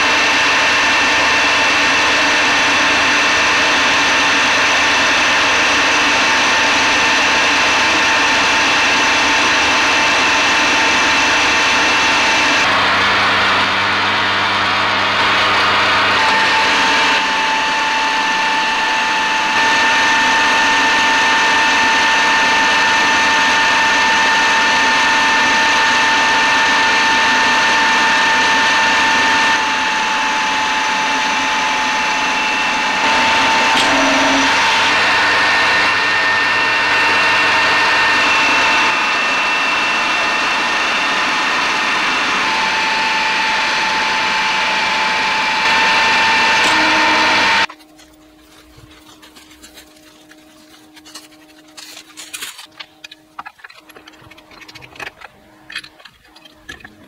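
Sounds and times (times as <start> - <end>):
lathe gear whine: 0.0 - 57.0
tool cutting steel hiss: 33.2 - 34.6.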